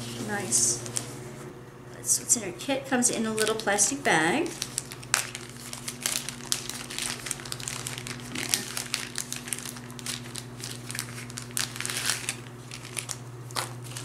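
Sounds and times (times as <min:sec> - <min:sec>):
plastic bag crinkling: 0:03.3 - 0:14.0.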